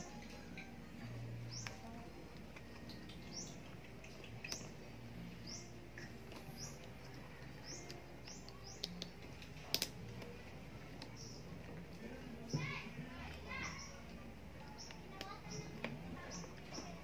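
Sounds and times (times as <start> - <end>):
small bird chirping: 0.0 - 9.2, 10.9 - 11.6
plastic connectors clicking: 7.8 - 10.3.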